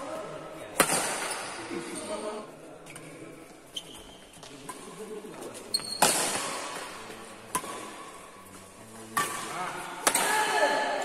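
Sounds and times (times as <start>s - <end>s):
rackets hitting shuttlecock: 0.7s - 1.7s, 5.8s - 8.2s, 9.0s - 11.0s
shoe squeak on court floor: 3.7s - 4.8s, 5.6s - 6.6s.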